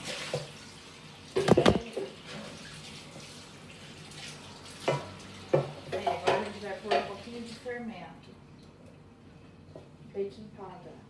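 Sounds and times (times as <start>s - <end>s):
loud knocks: 1.4s - 1.8s.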